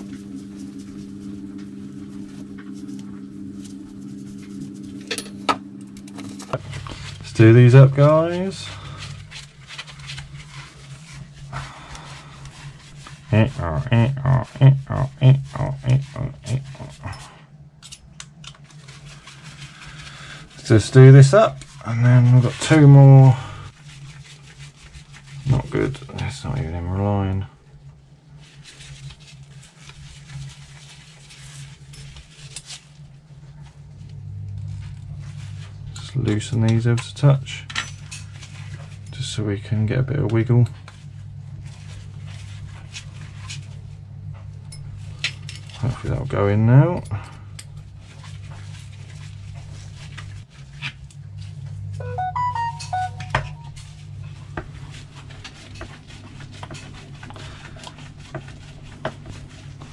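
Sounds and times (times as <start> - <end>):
steady low hum: 0.0 - 32.3.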